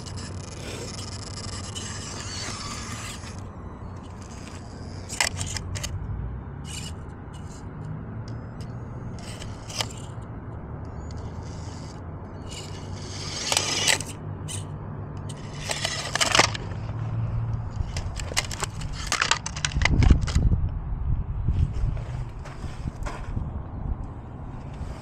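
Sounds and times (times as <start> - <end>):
rc car scraping against rock: 0.0 - 6.0, 6.6 - 7.7, 8.6 - 10.3, 10.9 - 17.0, 17.6 - 20.5
tyres grinding on stone: 11.0 - 14.6, 15.3 - 16.9
steady low rumble: 19.6 - 25.0.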